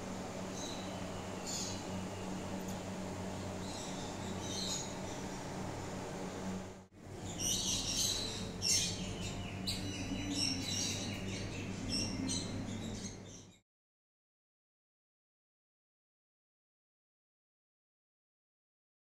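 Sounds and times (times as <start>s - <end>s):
steady low hum: 0.0s - 13.6s.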